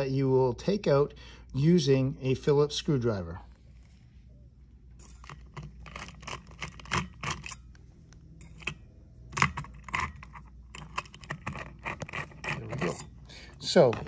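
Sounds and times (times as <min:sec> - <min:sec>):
metallic clicks and rattles: 0:05.0 - 0:07.8, 0:08.4 - 0:13.1.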